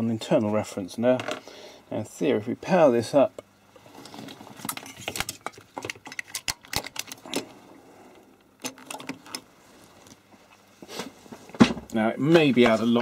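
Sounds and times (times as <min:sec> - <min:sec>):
plug clicking and rattling: 0:05.1 - 0:07.2.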